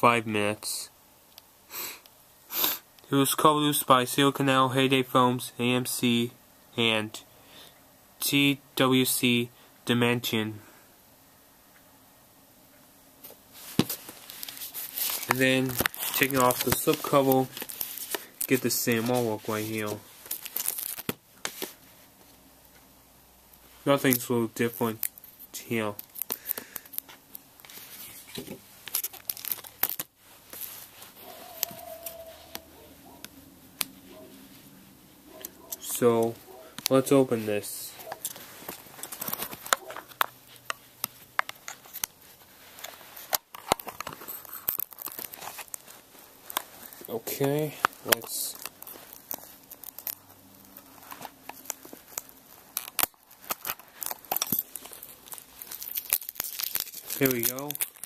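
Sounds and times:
plastic packaging crackling: 13.6s - 21.8s, 23.9s - 33.2s, 38.0s - 58.0s
plastic case crinkling and clicking: 38.1s - 42.2s, 42.8s - 45.8s, 46.5s - 58.0s.

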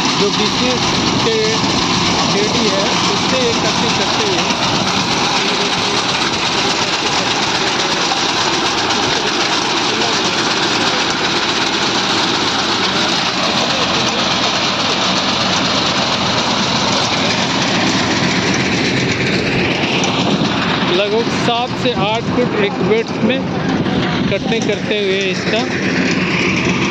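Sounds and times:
tractor engine running: 0.0s - 26.9s.

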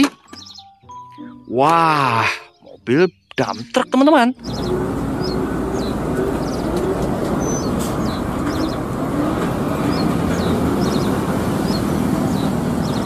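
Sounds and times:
small birds chirping: 0.0s - 13.0s
diesel truck engine running: 4.4s - 13.0s.

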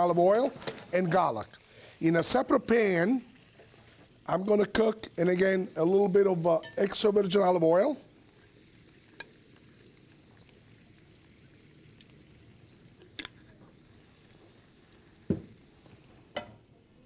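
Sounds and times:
pans and utensils clicking: 16.3s - 16.6s.

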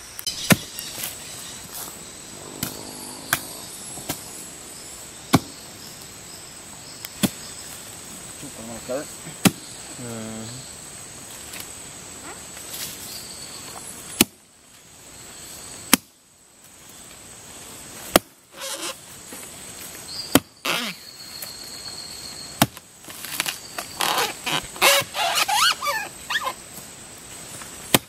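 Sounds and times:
high-pitched insect drone: 0.2s - 7.6s.

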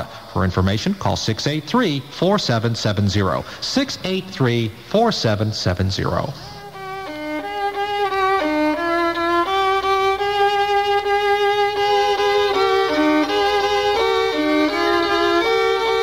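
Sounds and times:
violin playing quick melody: 6.5s - 16.0s.

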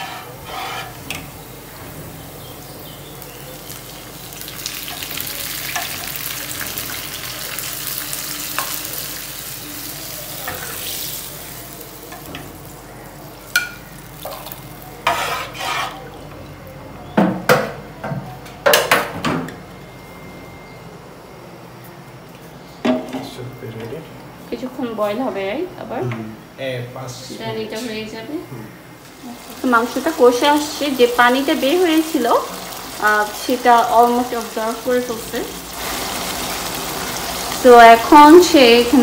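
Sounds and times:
onions sizzling in hot oil: 0.0s - 15.8s, 29.0s - 39.0s.

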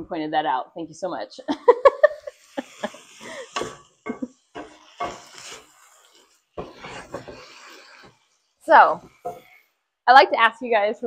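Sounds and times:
food sizzling: 1.5s - 9.8s
wooden spoon scraping skillet: 2.0s - 9.8s.

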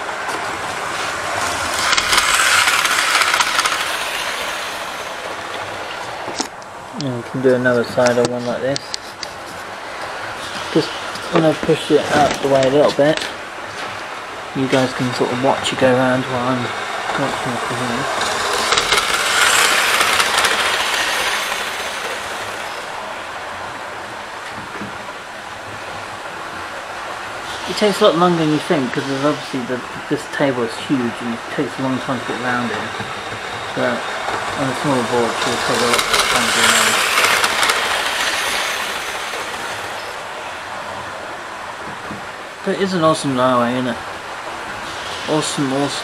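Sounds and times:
train motor whirring: 0.2s - 6.6s, 14.6s - 23.0s, 31.5s - 40.3s
model train wheels clicking on rails: 0.3s - 14.0s, 14.6s - 23.0s, 26.6s - 40.4s, 42.8s - 46.0s.

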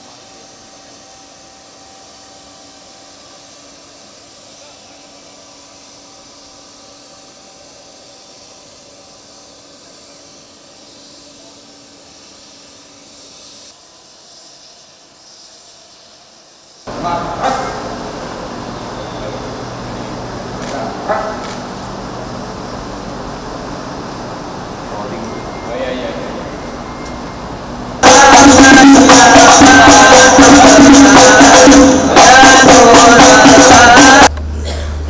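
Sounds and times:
jet turbine whine: 16.9s - 34.6s.

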